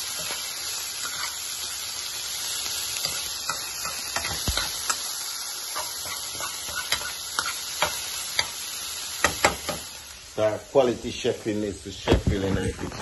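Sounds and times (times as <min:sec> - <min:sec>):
metal utensil scraping pan: 0:00.0 - 0:01.6, 0:03.0 - 0:05.1, 0:05.7 - 0:08.6
food sizzling in frying pan: 0:00.0 - 0:13.0.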